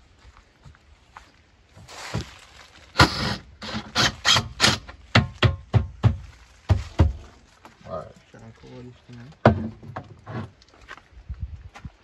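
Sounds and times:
cordless drill driving screws: 3.0s - 5.0s
sharp knocks: 3.0s - 7.2s.

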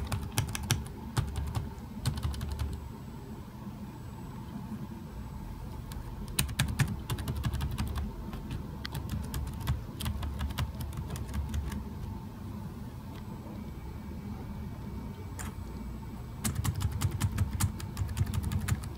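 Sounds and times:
laptop keys clicking: 0.0s - 2.8s, 5.9s - 11.8s, 15.4s - 15.6s, 16.4s - 18.9s.

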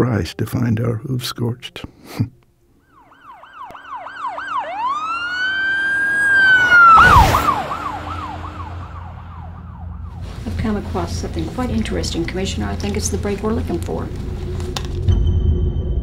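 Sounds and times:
police car siren passing: 2.8s - 14.8s.

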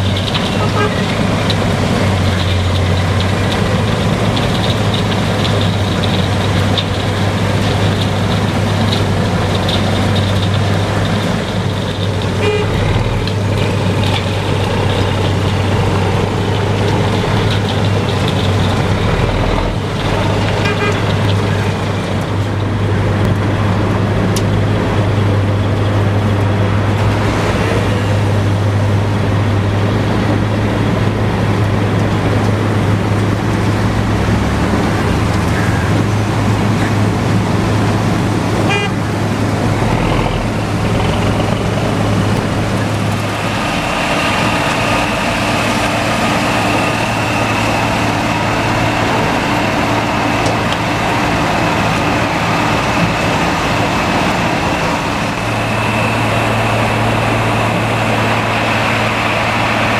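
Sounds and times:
conveyor loading asphalt into truck: 0.0s - 59.9s
heavy diesel engines droning: 0.0s - 59.9s.

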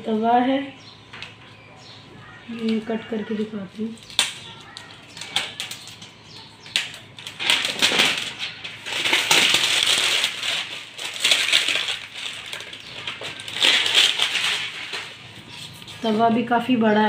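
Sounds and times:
plastic wrap crinkling and tearing: 2.7s - 16.2s.

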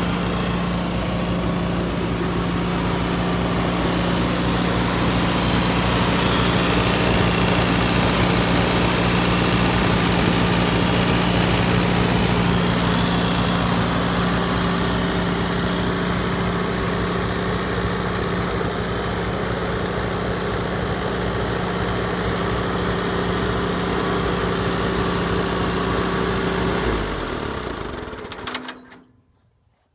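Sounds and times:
tractor engine running: 0.0s - 29.1s.

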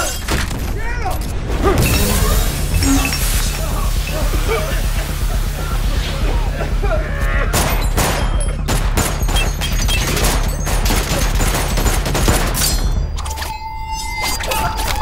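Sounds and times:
rapid gunfire: 3.4s - 12.9s.

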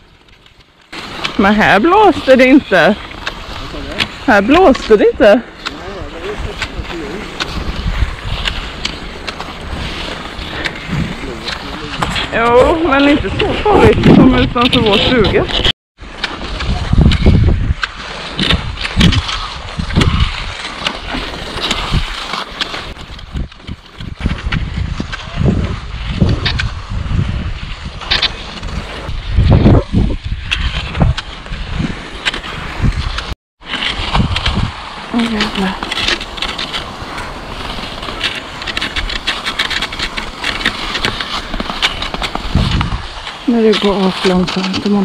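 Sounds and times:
skis swishing on snow: 0.0s - 45.0s
ski pole clicks: 35.4s - 45.0s.

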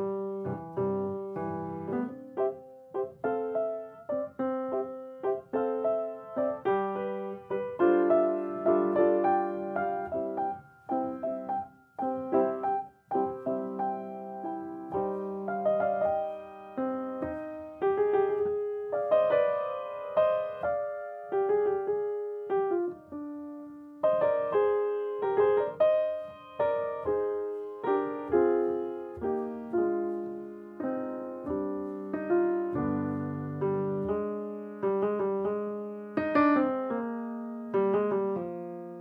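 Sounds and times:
solo piano: 0.0s - 39.0s.

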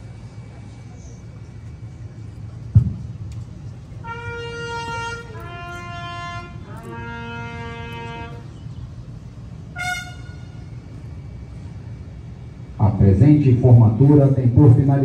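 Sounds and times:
low background rumble: 0.0s - 15.0s
bugle call: 4.0s - 8.6s, 9.6s - 10.9s.

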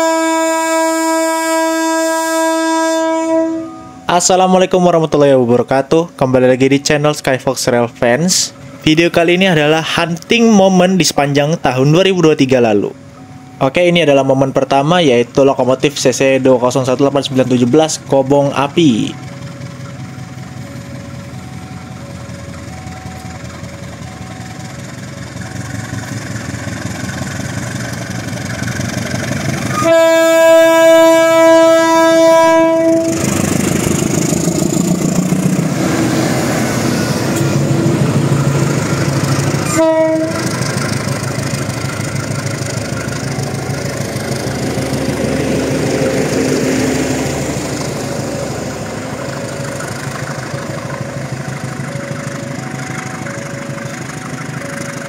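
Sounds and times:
train horn: 0.0s - 4.1s, 29.7s - 33.4s, 39.6s - 40.7s
train rolling rumble: 0.0s - 55.0s
locomotive engine running: 4.8s - 55.0s.

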